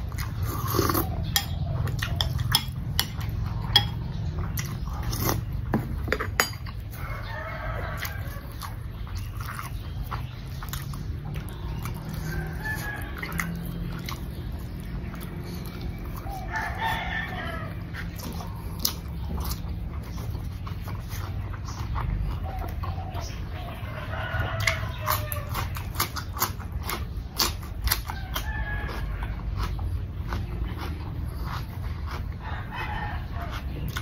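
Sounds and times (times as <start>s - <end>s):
close-up chewing with mouth clicks: 0.0s - 34.0s
rooster crowing: 6.9s - 8.7s, 12.1s - 13.8s, 16.2s - 18.1s, 23.7s - 25.8s, 28.0s - 29.4s, 32.4s - 33.6s.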